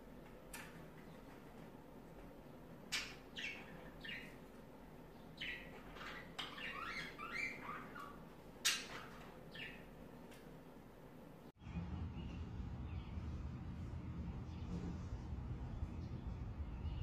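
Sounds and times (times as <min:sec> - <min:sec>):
budgerigars chirping: 0:02.9 - 0:04.4, 0:05.4 - 0:09.9.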